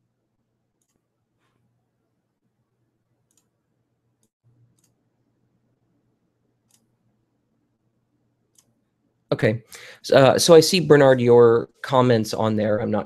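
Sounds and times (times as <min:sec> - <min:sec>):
computer clicks: 0:04.2 - 0:05.0, 0:06.6 - 0:06.9, 0:08.5 - 0:08.8.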